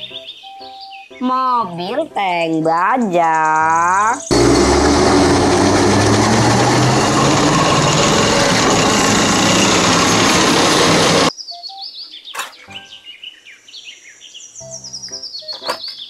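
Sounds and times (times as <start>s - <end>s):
tank engine and tracks rumble: 4.3s - 11.3s
high bird chirps: 11.3s - 13.6s, 14.4s - 16.0s.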